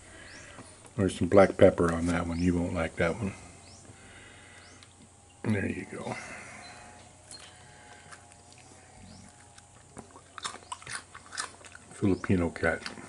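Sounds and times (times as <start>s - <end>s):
cat chewing crunchy food: 7.9s - 12.0s.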